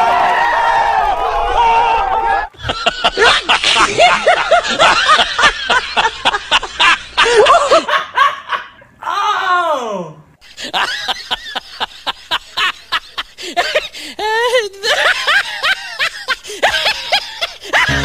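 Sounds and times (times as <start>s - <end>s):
people laughing and chattering: 17.8s - 18.0s.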